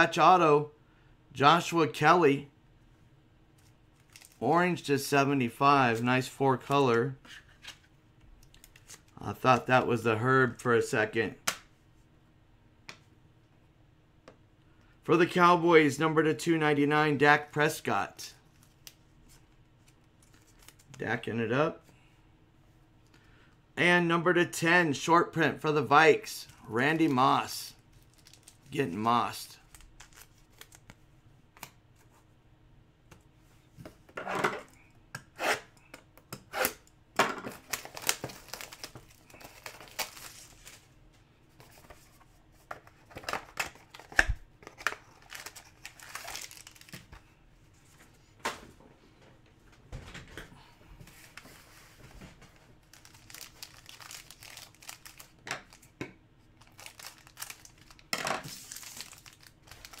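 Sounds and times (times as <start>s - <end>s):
foil wrapper crinkling: 27.9s - 28.8s, 37.5s - 40.9s, 44.7s - 47.3s, 52.8s - 55.9s, 56.6s - 60.0s.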